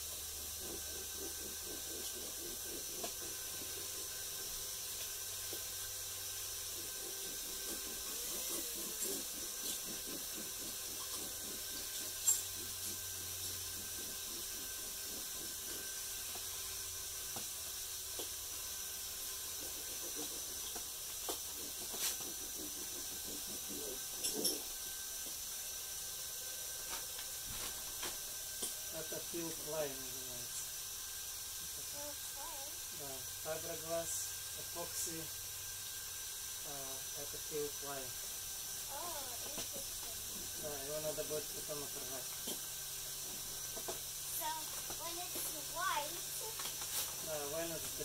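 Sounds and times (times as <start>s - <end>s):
steady hiss: 0.0s - 48.0s.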